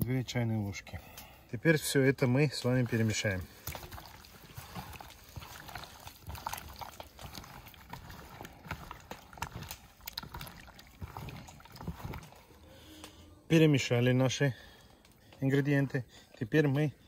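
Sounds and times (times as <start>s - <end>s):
wet squelches of meat and sauce: 2.5s - 13.2s.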